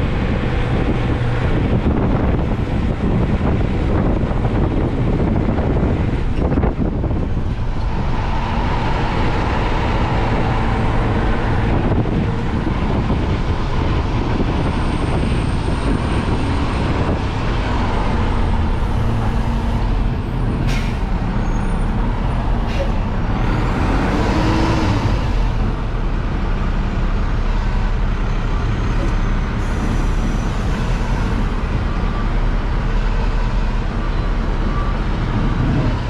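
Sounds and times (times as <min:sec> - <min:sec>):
truck engine rumble in cab: 0:00.0 - 0:36.0.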